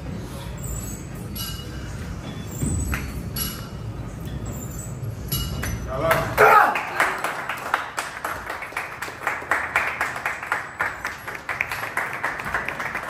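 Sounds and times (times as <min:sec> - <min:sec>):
people clapping: 0:06.1 - 0:13.0.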